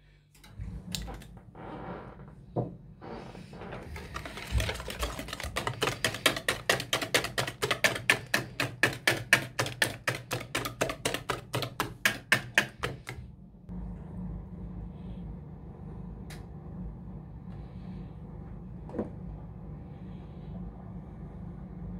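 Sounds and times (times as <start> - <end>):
whisk clicking against bowl: 4.0 - 13.2.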